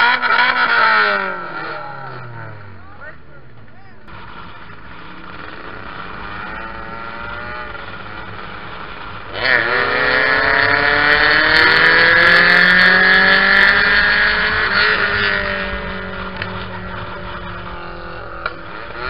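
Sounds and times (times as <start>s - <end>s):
moped engine revving: 0.0s - 19.0s.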